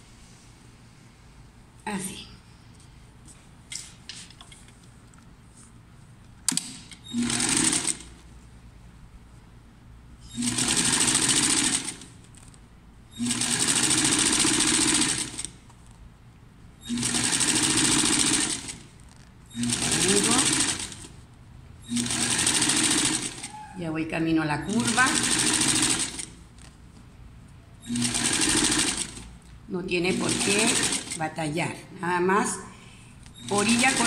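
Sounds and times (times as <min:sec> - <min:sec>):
sewing machine stitching: 0:07.0 - 0:08.1, 0:10.3 - 0:12.1, 0:13.2 - 0:15.5, 0:16.9 - 0:18.8, 0:19.5 - 0:21.1, 0:21.9 - 0:23.6, 0:24.7 - 0:26.3, 0:27.8 - 0:29.3, 0:30.1 - 0:31.2, 0:33.4 - 0:34.0.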